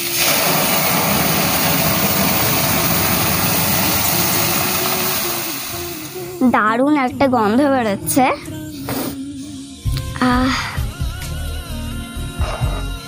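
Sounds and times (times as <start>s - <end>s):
loud sizzling hiss: 0.0s - 6.6s.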